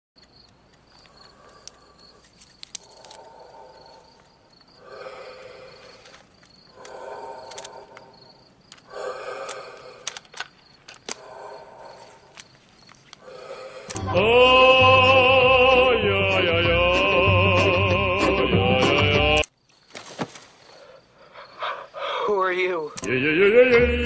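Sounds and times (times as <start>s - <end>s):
crickets chirping: 0.2s - 14.0s, 19.4s - 23.6s.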